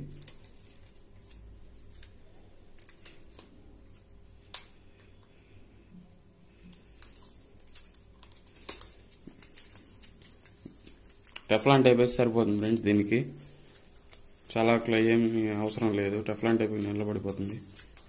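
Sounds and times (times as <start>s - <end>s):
tape rustling and ticking: 6.6s - 11.9s, 12.6s - 18.0s.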